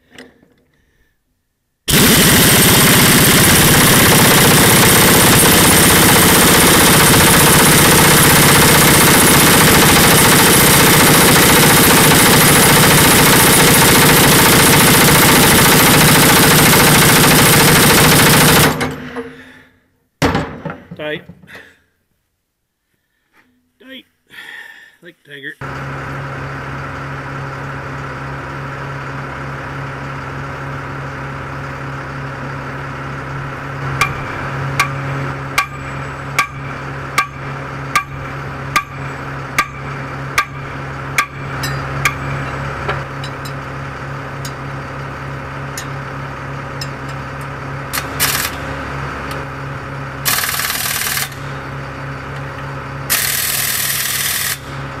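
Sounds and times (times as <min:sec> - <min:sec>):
engine idling: 0:01.9 - 0:19.8, 0:25.6 - 0:55.0
hammer strikes on steel: 0:34.0 - 0:38.2, 0:38.8 - 0:43.6.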